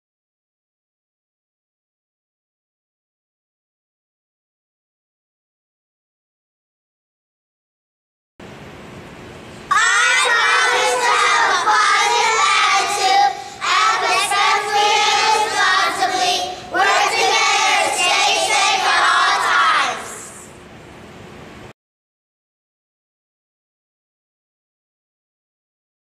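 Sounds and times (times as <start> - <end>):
children speaking in unison: 9.7 - 20.4.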